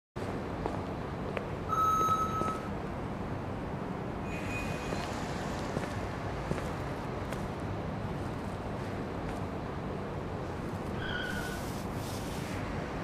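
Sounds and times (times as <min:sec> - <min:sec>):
steady low hum: 0:00.2 - 0:13.0
metal detector electronic beeps: 0:01.7 - 0:02.7
faint footsteps: 0:04.9 - 0:09.6.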